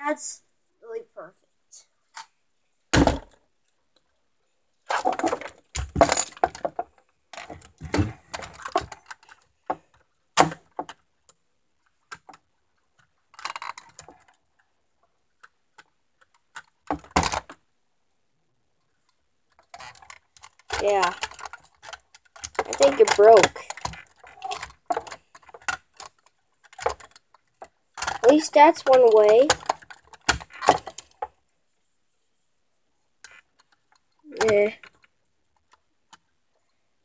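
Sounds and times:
plastic parts clattering: 4.8 - 11.0, 13.0 - 14.4, 19.5 - 31.3.

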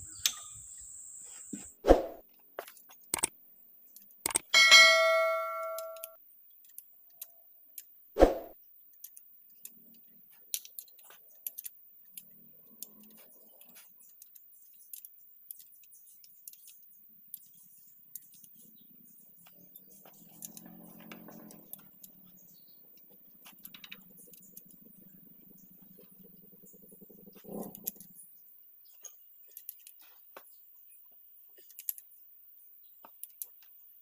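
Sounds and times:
metal tools clinking on engine parts: 4.6 - 6.2
ringing metal clang: 4.6 - 6.2
sharp metal clank: 4.6 - 6.2.

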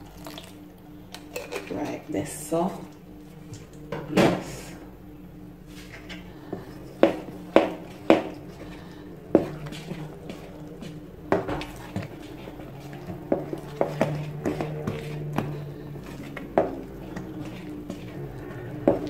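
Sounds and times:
spoon stirring batter in metal bowl: 5.7 - 19.0.

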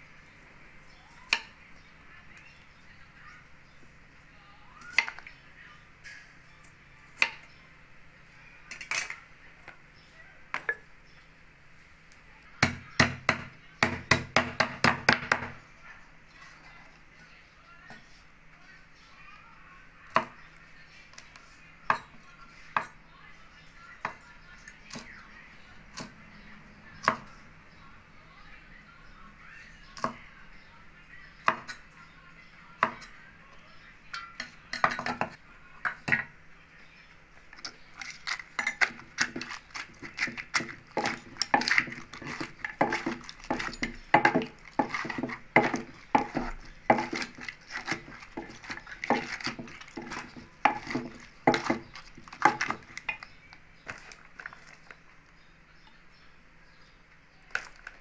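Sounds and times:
pestle pounding in wooden mortar: 12.6 - 15.6, 38.0 - 53.2
metal spoon clinking and scraping: 37.6 - 54.8.

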